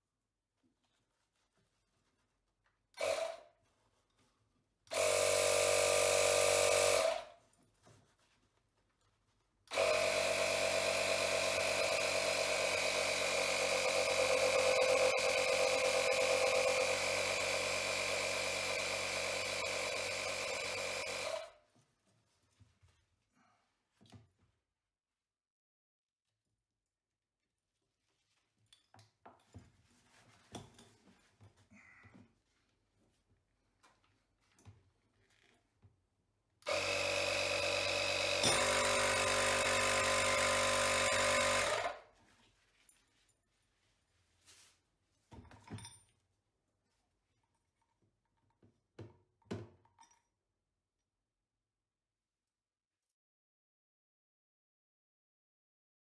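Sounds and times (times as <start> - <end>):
air inflator compressor running: 3.0 - 3.4, 4.9 - 7.3, 9.7 - 21.5, 36.6 - 42.0.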